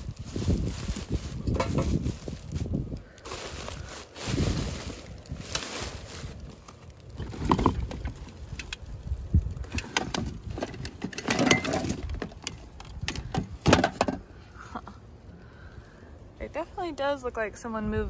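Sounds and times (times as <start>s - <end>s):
plastic garbage bags rustling: 0.0s - 14.3s
objects clattering in dumpster: 1.4s - 2.2s, 7.2s - 8.4s, 9.7s - 14.2s.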